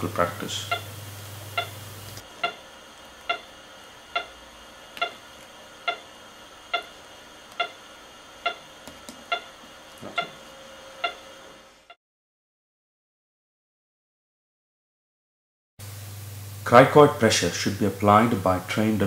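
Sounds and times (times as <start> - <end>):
pulse oximeter beeping: 0.6 - 10.4, 11.0 - 11.4.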